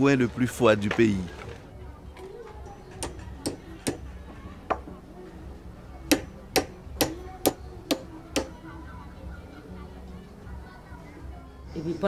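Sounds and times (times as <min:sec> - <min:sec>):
sharp knocking: 0:03.0 - 0:04.1, 0:06.1 - 0:08.6.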